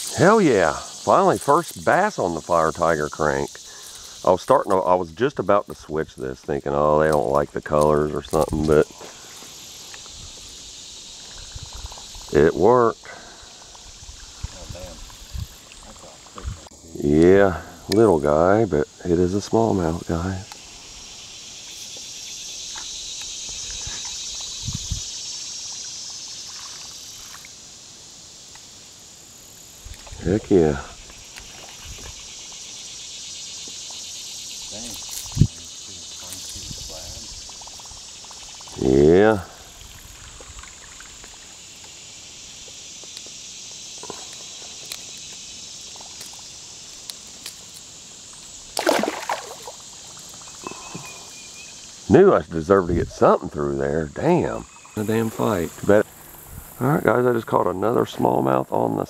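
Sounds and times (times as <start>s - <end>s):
insects buzzing: 0.0s - 59.0s
fish splashing into water: 48.7s - 50.2s.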